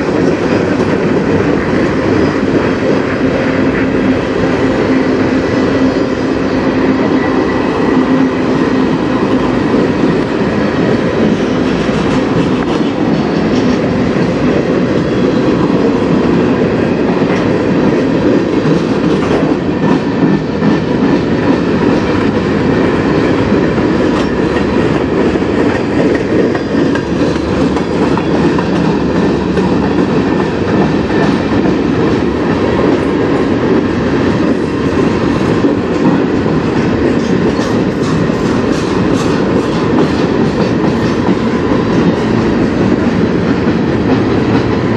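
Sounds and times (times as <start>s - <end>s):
train wheels rumbling on rail: 0.0s - 44.9s
wheels clicking over rail joints: 0.0s - 44.9s.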